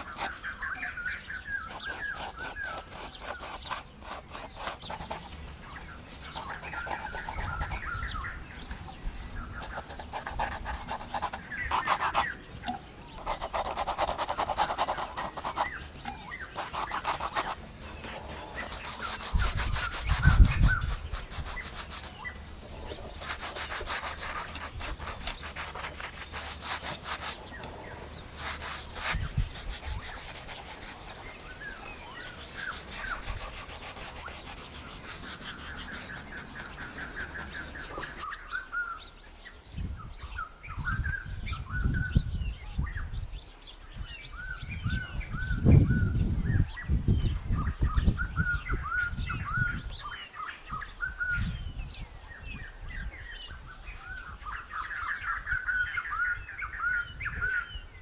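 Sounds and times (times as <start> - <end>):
paintbrush scrubbing on plaster: 0.0 - 0.4, 1.6 - 5.4, 6.2 - 8.0, 9.5 - 12.4, 13.2 - 22.3, 22.9 - 38.3
birds chirping: 0.0 - 58.0.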